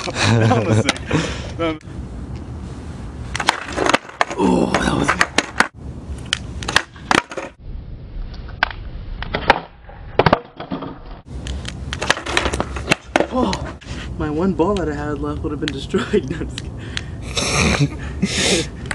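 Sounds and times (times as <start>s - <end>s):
skateboard wheels rolling on concrete: 2.2s - 18.9s
skateboard clacks and knocks: 3.4s - 5.7s, 12.0s - 13.7s.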